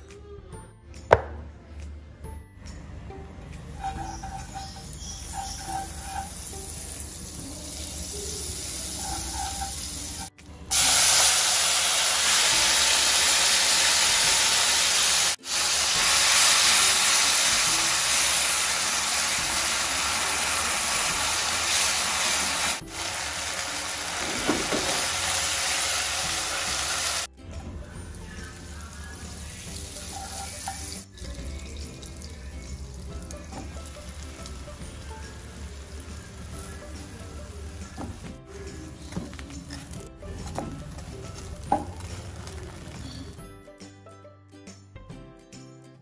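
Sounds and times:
meat and onion sizzling in a wok: 0:03.8 - 0:27.3, 0:28.0 - 0:43.4.

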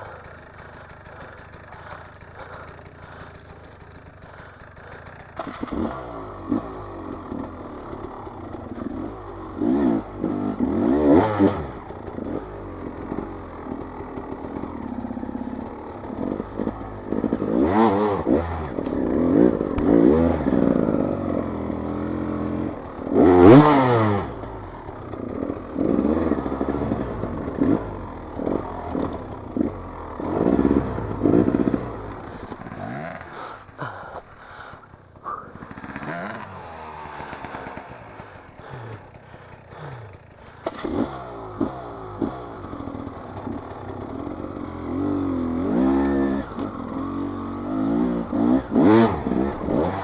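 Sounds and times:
clatter and scraping over logs: 0:00.0 - 0:06.6, 0:28.4 - 0:44.6
motorcycle engine revving: 0:00.0 - 0:50.0.

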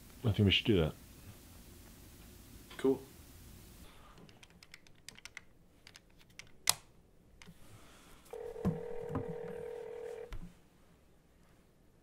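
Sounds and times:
phone ringing tone: 0:08.3 - 0:10.3.

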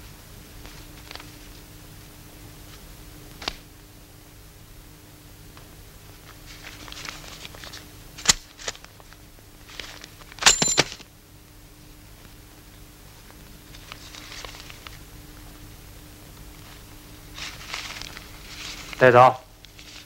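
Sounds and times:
steady low hum: 0:00.0 - 0:20.0
clatter with metallic ring: 0:10.4 - 0:11.0
faint rustling: 0:16.6 - 0:19.2.

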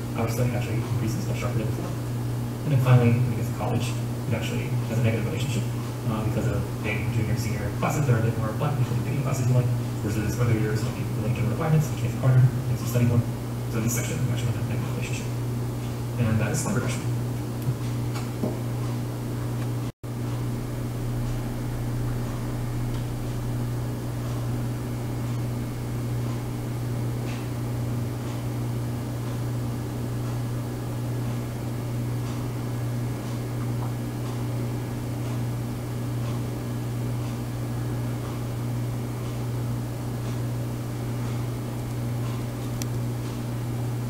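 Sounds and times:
low hum: 0:18.6 - 0:36.8.

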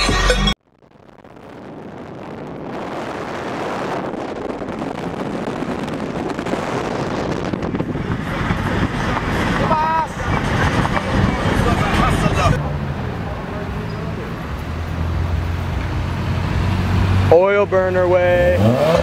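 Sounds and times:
music: 0:00.0 - 0:00.6
wind on microphone: 0:00.8 - 0:12.6.

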